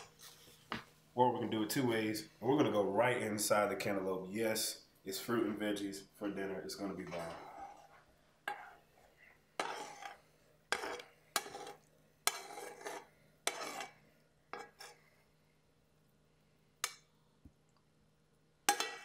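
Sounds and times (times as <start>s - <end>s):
metal spoon scraping frying pan: 7.0s - 8.9s, 9.6s - 15.0s, 18.7s - 19.0s.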